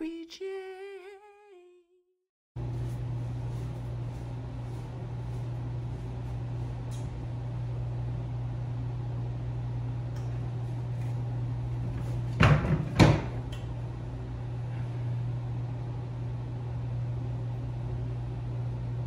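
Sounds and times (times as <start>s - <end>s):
low room hum: 2.6s - 19.0s
loud knocks: 12.3s - 13.4s.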